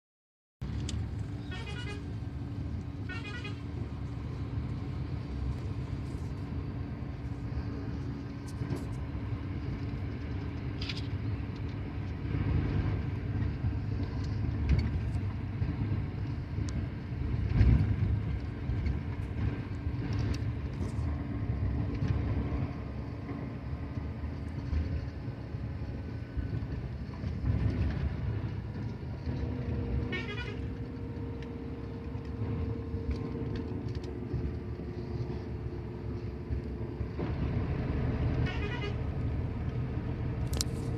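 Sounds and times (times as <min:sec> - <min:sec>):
bus engine and road rumble: 0:00.6 - 0:40.9
short warbling horn: 0:01.4 - 0:02.1, 0:03.0 - 0:03.7, 0:30.1 - 0:30.8, 0:38.4 - 0:39.1.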